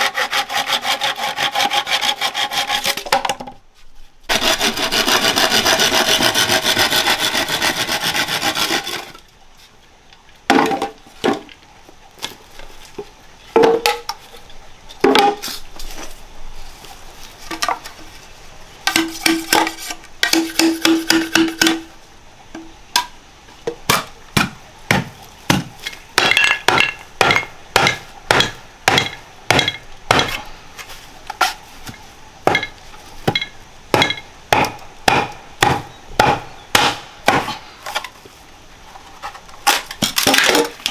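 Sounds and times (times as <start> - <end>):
hand sawing through wood: 0.0 - 3.0, 4.3 - 9.2.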